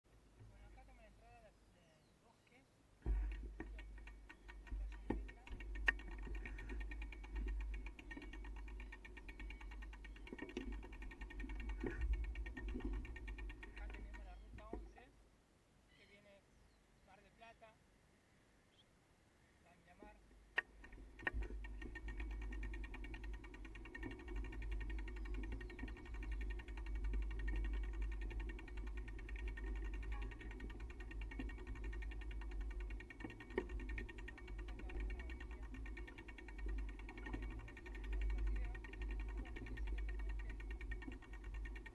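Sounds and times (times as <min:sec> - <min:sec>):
bicycle knocks: 0:03.0 - 0:15.0, 0:20.6 - 0:41.9
bicycle rattling on dirt trail: 0:03.0 - 0:15.1, 0:20.0 - 0:41.9.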